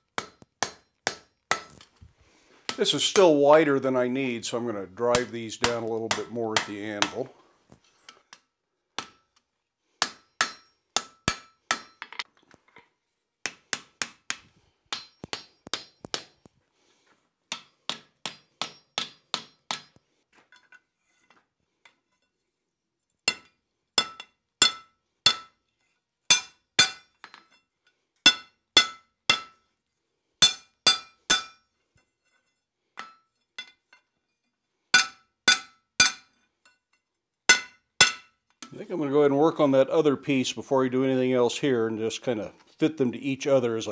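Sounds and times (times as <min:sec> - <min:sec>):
hammer striking metal on anvil: 0:00.2 - 0:01.8, 0:05.1 - 0:07.2, 0:10.0 - 0:12.1, 0:13.7 - 0:16.4, 0:17.5 - 0:20.0, 0:23.3 - 0:25.5, 0:26.3 - 0:27.1, 0:28.3 - 0:29.6, 0:30.4 - 0:31.6, 0:35.0 - 0:36.3, 0:37.5 - 0:38.4.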